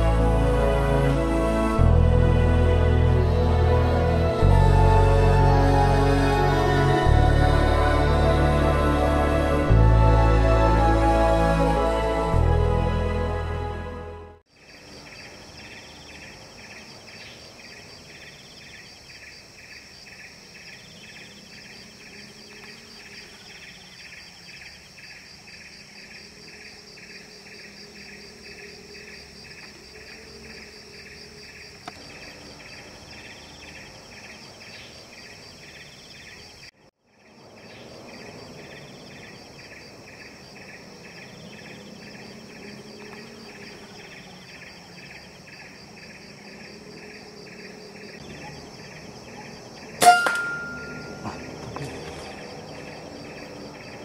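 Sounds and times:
insects chirring: 14.5s - 54.0s.

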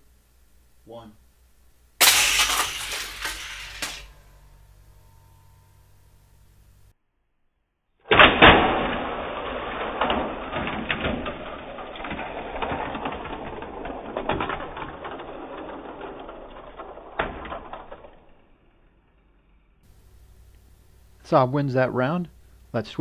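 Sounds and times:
toy cars clattering on track: 2.0s - 5.6s, 8.2s - 18.6s.

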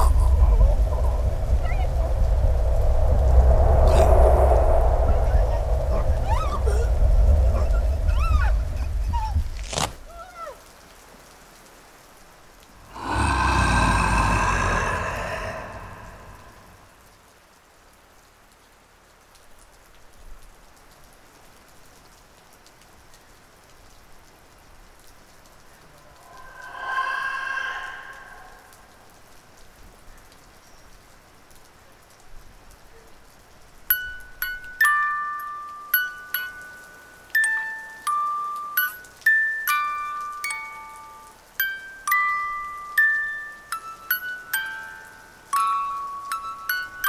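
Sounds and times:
steady rain-like hiss: 0.0s - 47.0s
horror film soundtrack: 12.8s - 17.0s, 25.9s - 29.3s.

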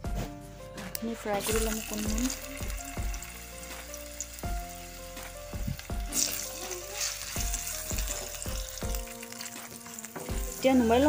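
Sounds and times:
potatoes sizzling in oil: 1.3s - 11.0s
spatula scraping a pan: 6.1s - 11.0s.

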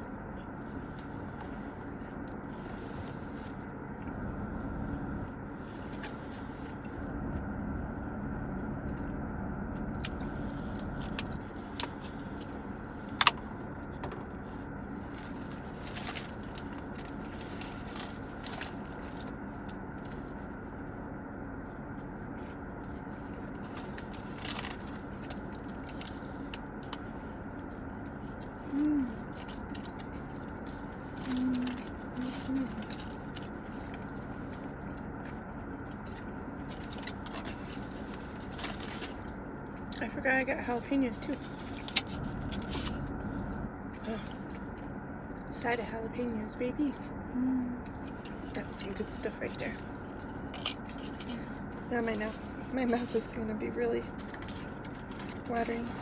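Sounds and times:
car interior hum: 0.0s - 56.0s
person humming mm: 28.7s - 29.2s, 31.3s - 32.8s, 47.3s - 47.8s.

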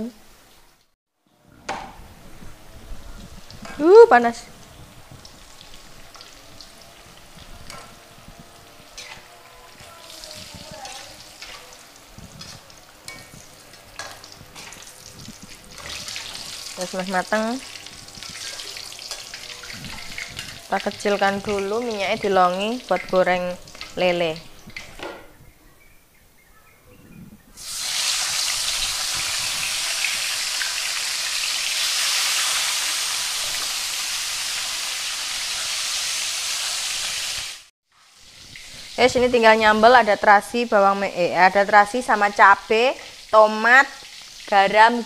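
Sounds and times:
food sizzling in hot oil: 2.0s - 25.0s, 27.6s - 45.0s.

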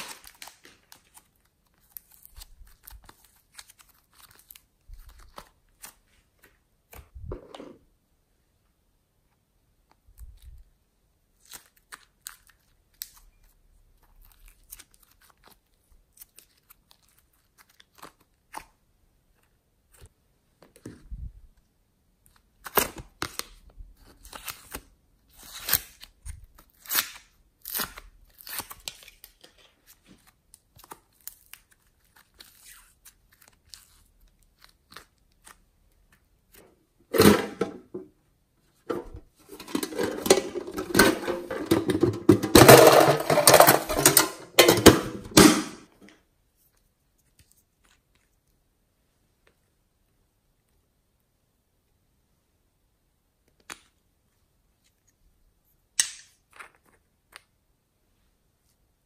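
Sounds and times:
plastic lids crackling and peeling: 0.0s - 6.0s, 38.9s - 45.6s
plastic wrapping crackling rustle: 0.0s - 6.6s.

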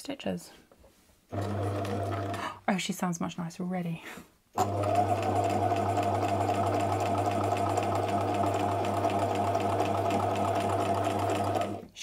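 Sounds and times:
sewing machine stitching: 1.3s - 2.5s, 4.6s - 11.9s.

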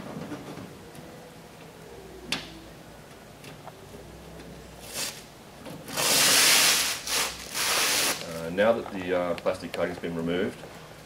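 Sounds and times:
plastic film peeling: 5.9s - 8.5s
plastic rustle: 5.9s - 8.6s.

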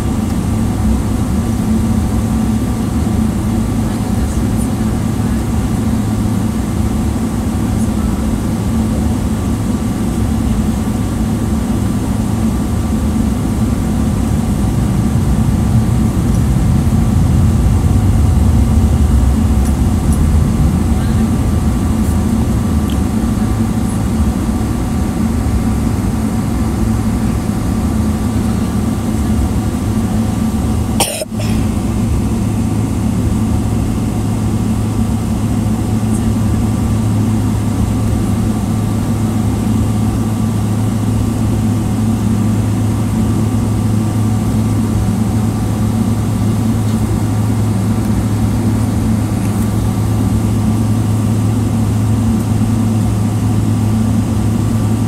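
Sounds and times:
faint steady whines: 0.0s - 55.0s
jet engine drone in cabin: 0.0s - 55.0s.

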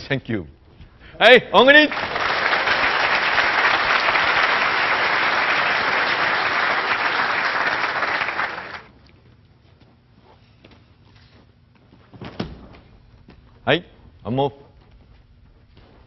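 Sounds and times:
audience applauding: 1.6s - 8.9s.

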